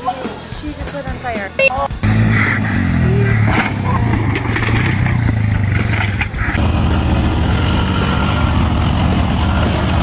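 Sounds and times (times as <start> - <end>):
truck engine running hard: 2.0 - 10.0
atv engine: 2.1 - 10.0.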